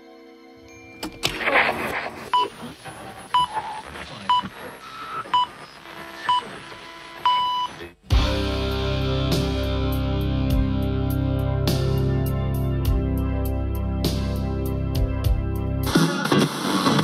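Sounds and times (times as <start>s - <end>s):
music: 0.0s - 1.7s, 8.1s - 17.0s
burst of noise: 1.2s - 4.8s
faint radio hiss: 1.2s - 8.1s.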